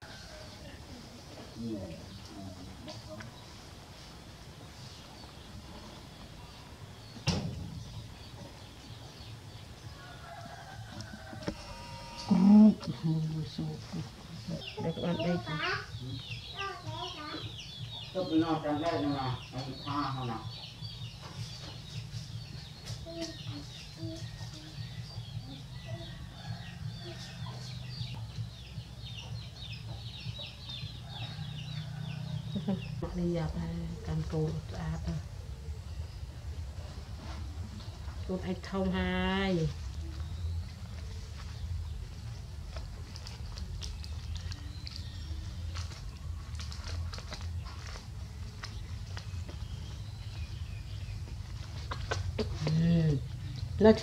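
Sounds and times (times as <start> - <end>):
chicks peeping: 14.4 - 33.0.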